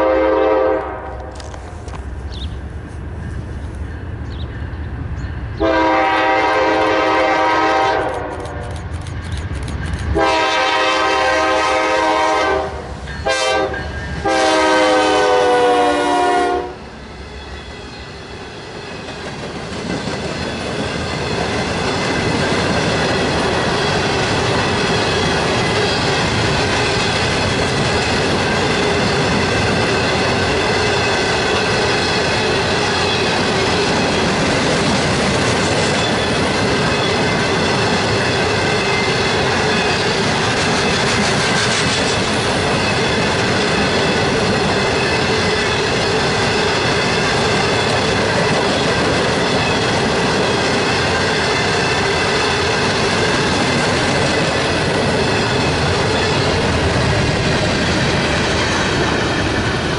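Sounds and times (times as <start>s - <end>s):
train air horn blasts: 0.0s - 1.4s, 5.6s - 8.6s, 10.2s - 16.8s
train wheels clattering: 17.3s - 59.9s.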